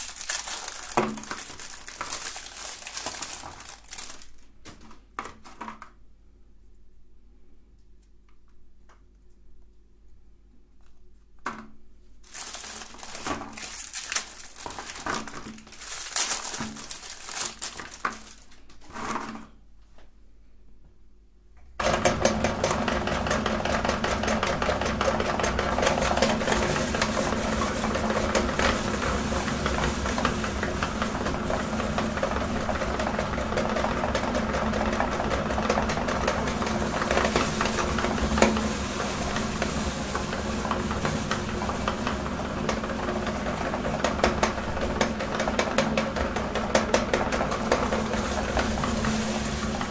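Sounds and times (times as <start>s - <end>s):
electric meat grinder running: 21.8s - 49.9s.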